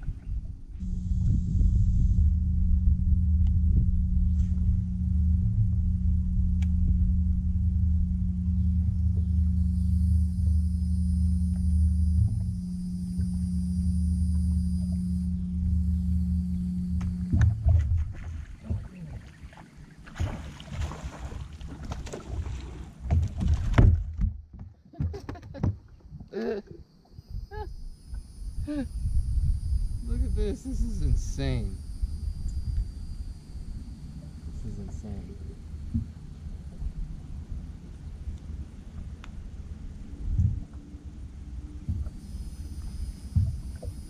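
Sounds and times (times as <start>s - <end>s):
wind rumbling on microphone: 0.0s - 26.4s, 27.1s - 44.0s
electric trolling motor humming: 0.6s - 23.2s, 27.2s - 44.0s
fish splashing at the surface: 17.9s - 24.0s
fish thumping on boat deck: 20.2s - 26.3s.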